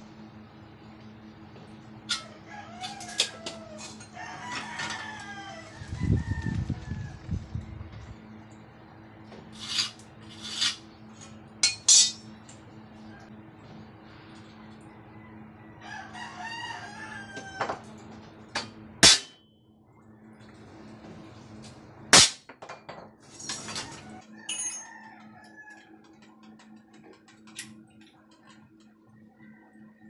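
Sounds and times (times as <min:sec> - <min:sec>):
steady low hum: 0:00.0 - 0:30.0
rooster crowing: 0:02.1 - 0:07.5, 0:14.6 - 0:18.0, 0:23.7 - 0:26.6, 0:29.1 - 0:30.0.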